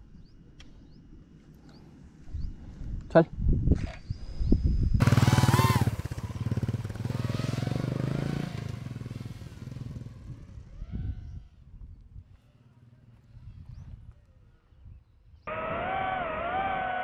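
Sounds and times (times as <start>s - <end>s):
motorcycle engine revving: 5.0s - 11.4s, 15.5s - 17.0s.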